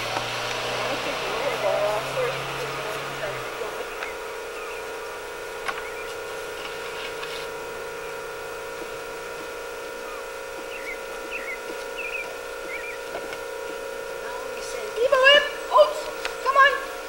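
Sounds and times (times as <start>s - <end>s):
electrical hum: 0.0s - 17.0s
faint high chirps: 10.0s - 13.1s.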